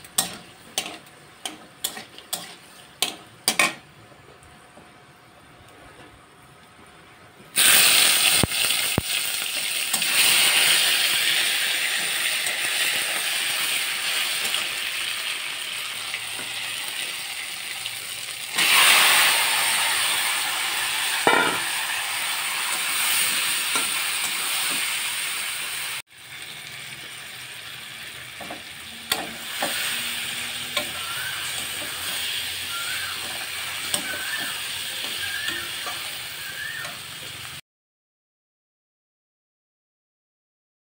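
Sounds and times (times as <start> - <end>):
food sizzling in hot oil: 0.0 - 3.8, 7.6 - 37.6
metal spatula scraping pan: 0.2 - 3.7.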